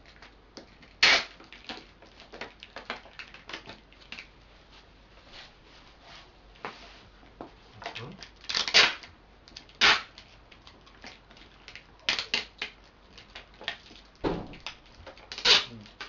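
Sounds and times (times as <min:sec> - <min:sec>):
tape rubbed onto plastic bottles: 0:09.8 - 0:10.1, 0:15.3 - 0:16.0.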